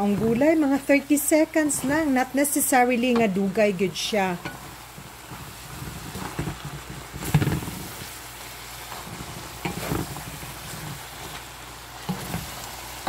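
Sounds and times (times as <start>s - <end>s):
vegetables sizzling in a pan: 0.0s - 13.0s
spatula scraping a pan: 4.4s - 12.7s.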